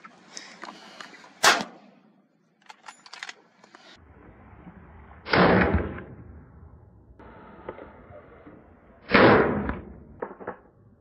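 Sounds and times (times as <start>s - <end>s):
low rumble: 4.0s - 11.0s
gunshots: 5.3s - 6.1s, 9.0s - 10.5s.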